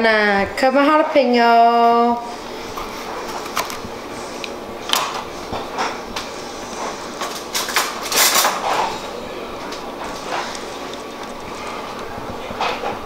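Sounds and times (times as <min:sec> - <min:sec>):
kitchen clatter: 0:04.9 - 0:13.0.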